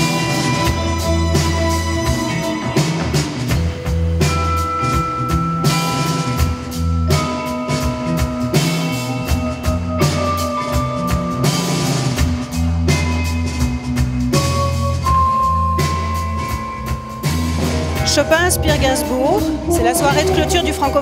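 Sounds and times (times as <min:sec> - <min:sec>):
bass line: 0:00.0 - 0:21.0
drum kit beat: 0:00.0 - 0:21.0
long held melody notes: 0:14.8 - 0:21.0.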